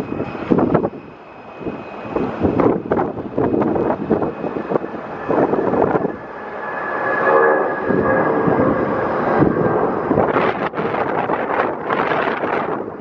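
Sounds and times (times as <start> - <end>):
jet engine whine: 0.0 - 13.0
jet engines roaring at takeoff: 0.0 - 13.0
wind buffeting microphone: 0.0 - 13.0.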